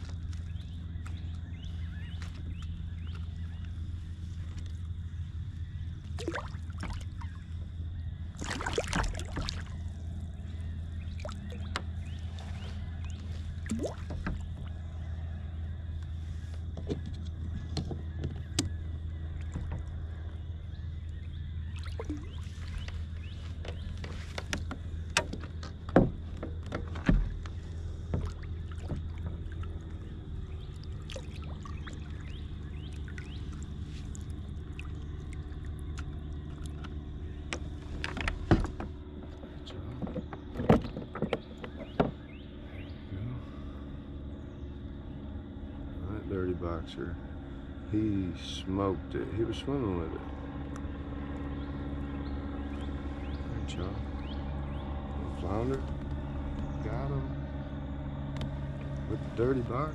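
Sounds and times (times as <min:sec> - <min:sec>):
steady low hum: 0:00.0 - 0:59.9
knocks and rattles of fishing gear: 0:16.5 - 0:18.8, 0:22.4 - 0:29.9, 0:36.0 - 0:42.3.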